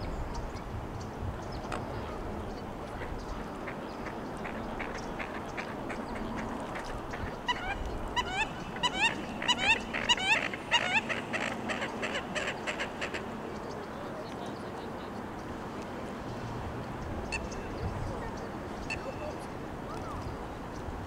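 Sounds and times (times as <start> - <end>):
steady background noise: 0.0 - 21.0
waterfowl calling: 2.0 - 14.0.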